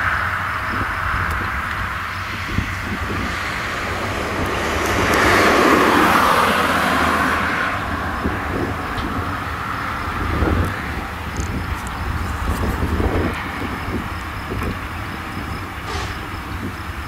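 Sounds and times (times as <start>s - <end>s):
tractor running: 0.0s - 17.0s.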